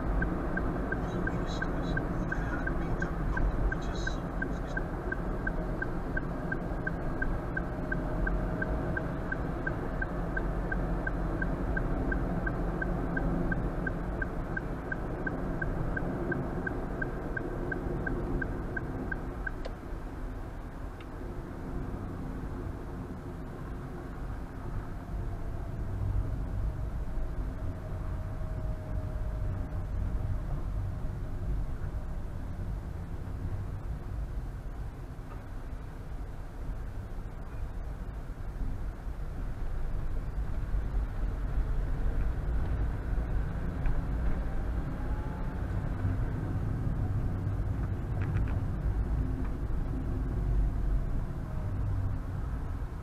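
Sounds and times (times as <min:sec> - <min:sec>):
turn signal ticking: 0:00.0 - 0:19.8
road and engine rumble: 0:00.0 - 0:53.0.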